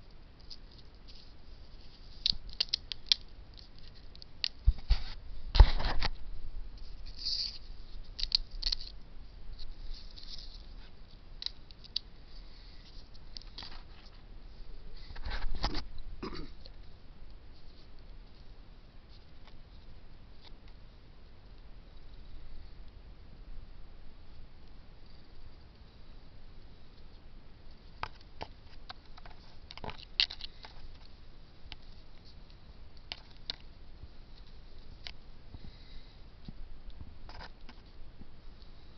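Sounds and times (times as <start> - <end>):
hands handling plastic: 0.0 - 20.8, 27.0 - 38.0
plastic pot clicking and crackling: 2.1 - 4.9, 7.4 - 9.0, 11.4 - 12.1, 28.0 - 31.1.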